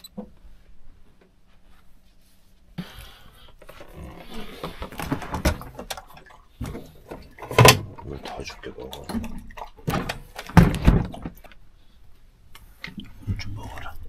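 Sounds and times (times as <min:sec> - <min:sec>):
dog lapping water: 0:05.2 - 0:11.6.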